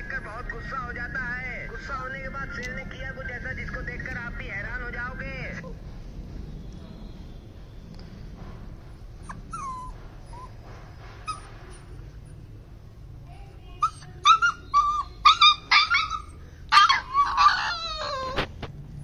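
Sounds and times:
puppies whimpering: 9.2s - 10.6s, 11.2s - 12.0s, 13.8s - 18.5s
puppies yelping: 9.2s - 12.0s, 13.8s - 18.5s.

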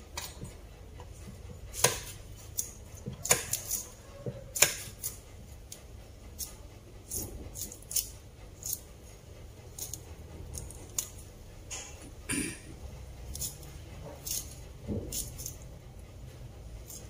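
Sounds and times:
knife cutting crisp vegetable: 1.3s - 5.8s, 6.4s - 8.9s, 9.7s - 11.2s, 13.3s - 15.6s, 16.8s - 17.0s.

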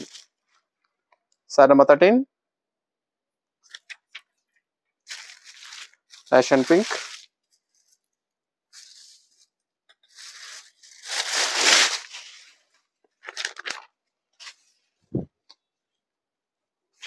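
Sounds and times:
stiff fabric rustling: 5.1s - 8.0s.

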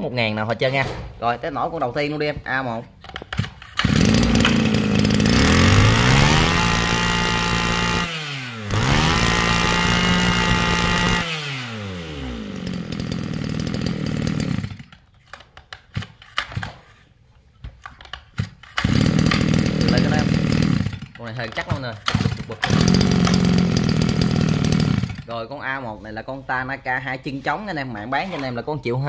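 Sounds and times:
engine pull-start: 3.4s - 8.1s, 18.4s - 25.3s
brush-cutter engine revving: 3.7s - 15.0s, 18.7s - 25.3s.

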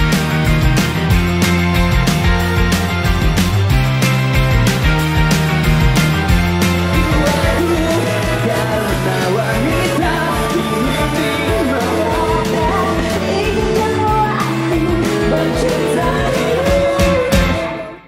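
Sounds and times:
steady drum beat: 0.0s - 17.6s
electric guitars: 0.0s - 18.0s
keyboard: 0.0s - 18.0s
person singing: 6.8s - 18.0s.

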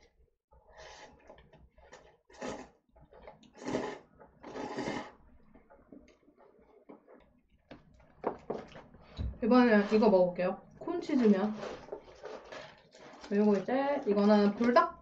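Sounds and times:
noodles slurped and chewed: 0.7s - 5.3s, 11.1s - 14.8s.

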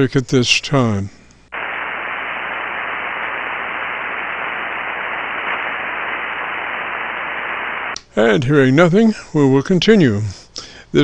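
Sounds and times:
radio static hiss: 1.5s - 8.0s.

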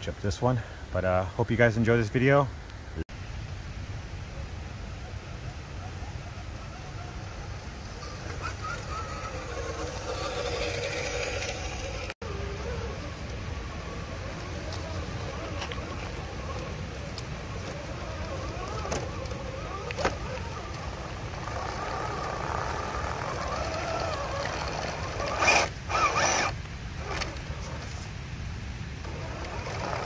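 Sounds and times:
rough bursts of motor noise: 6.0s - 28.1s, 29.0s - 30.0s
electric motor whining: 6.5s - 28.0s, 29.0s - 30.0s.

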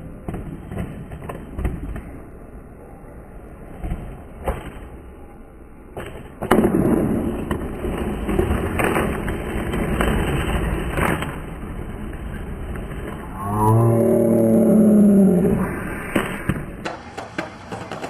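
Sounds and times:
skateboard clacks: 0.0s - 2.3s, 5.9s - 13.3s, 16.1s - 18.0s
skateboard wheels rolling on asphalt: 0.0s - 18.0s.

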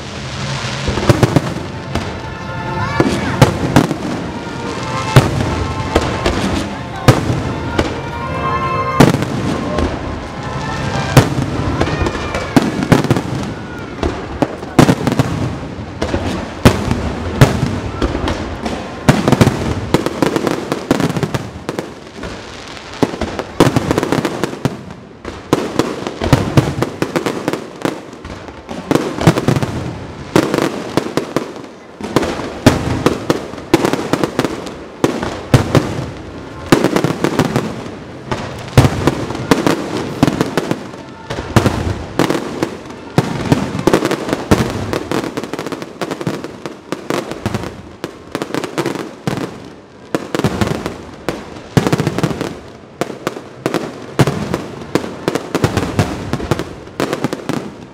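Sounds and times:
fireworks bangs and crackles: 0.0s - 57.9s.

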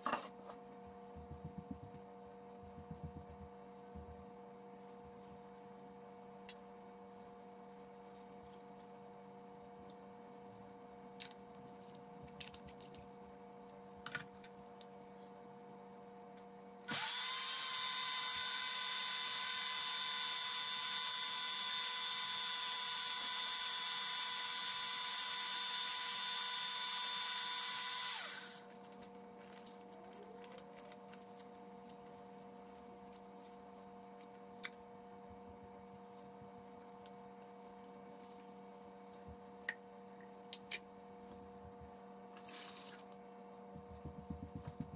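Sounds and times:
blender motor whining: 16.9s - 28.7s.

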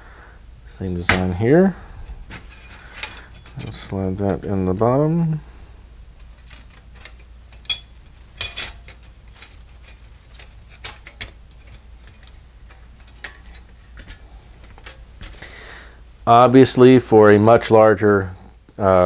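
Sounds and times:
metal stove panels clinking: 6.2s - 15.5s.

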